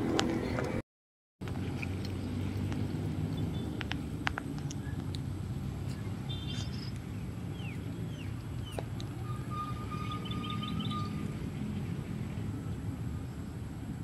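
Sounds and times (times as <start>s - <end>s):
bird chirps: 5.9s - 11.3s.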